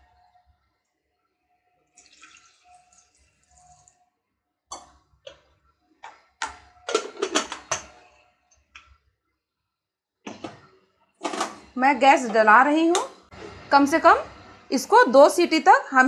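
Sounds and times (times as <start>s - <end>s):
water pouring into a pot: 1.8s - 4.2s
metal lid clicks and clanks: 6.4s - 7.9s.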